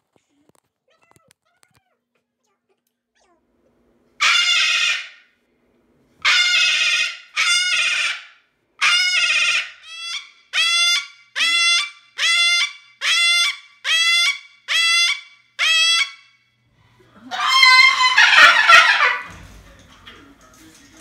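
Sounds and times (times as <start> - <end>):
cockatoo screaming: 4.2 - 5.3, 6.2 - 16.3, 17.2 - 19.3.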